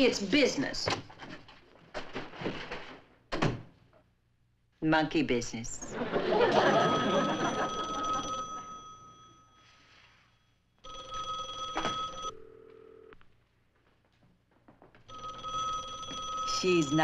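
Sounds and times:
telephone bell ringing: 0:06.1 - 0:13.2, 0:15.1 - 0:17.0.

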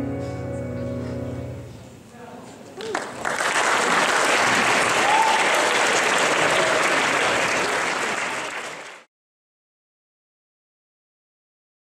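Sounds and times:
audience applauding: 0:02.8 - 0:09.1.

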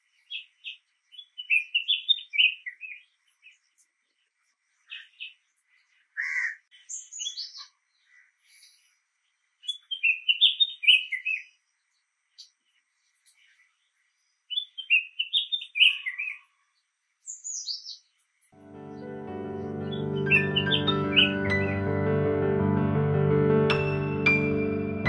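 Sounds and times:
bird chirping and whistling: 0:20.2 - 0:21.7.

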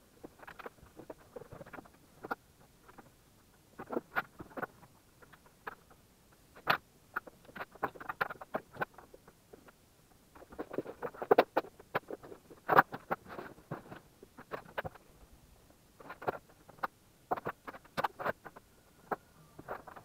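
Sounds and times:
cables and plugs handling noise: 0:00.2 - 0:03.1, 0:16.0 - 0:20.0.

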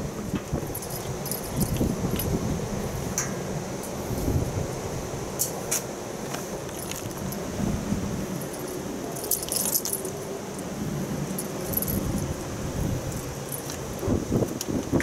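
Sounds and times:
small bell on cat toy jingling: 0:00.7 - 0:02.4, 0:08.4 - 0:10.7, 0:11.3 - 0:12.3.

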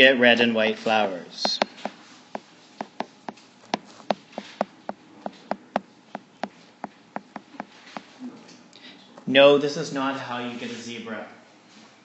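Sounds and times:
stylus tapping on a screen: 0:01.5 - 0:08.2.

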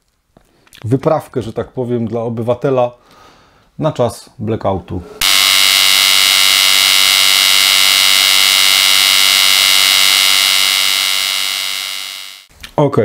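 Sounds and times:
harsh electric buzz: 0:05.2 - 0:12.5.

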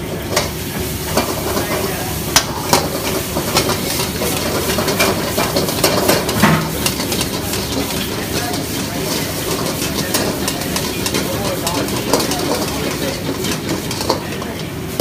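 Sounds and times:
food sizzling in a wok: 0:00.0 - 0:15.0.

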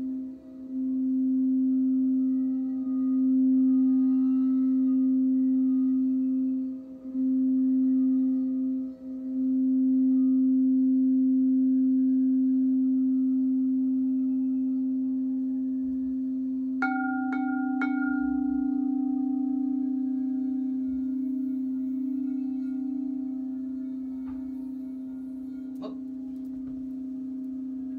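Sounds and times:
singing bowl low tone: 0:00.0 - 0:27.9
singing bowl struck ringing: 0:16.8 - 0:27.9.

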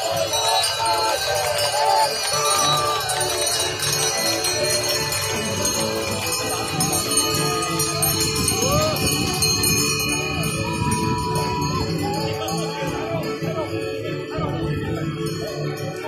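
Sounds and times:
harness bells jingling: 0:00.0 - 0:16.0
music playing: 0:00.0 - 0:16.0.

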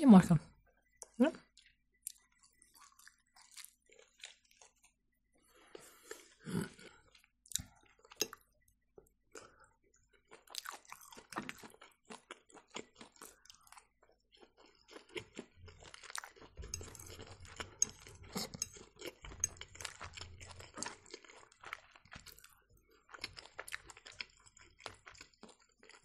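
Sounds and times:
person chewing: 0:00.9 - 0:08.6, 0:09.3 - 0:26.0.

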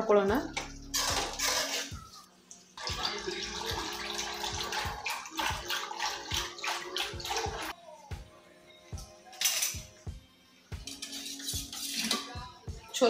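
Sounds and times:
liquid sloshing and swishing: 0:00.9 - 0:02.2, 0:02.8 - 0:07.8.

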